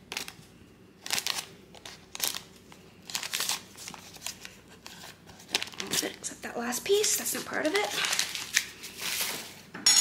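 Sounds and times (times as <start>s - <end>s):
paper wrapper crinkling: 0.0s - 0.4s, 1.0s - 9.6s.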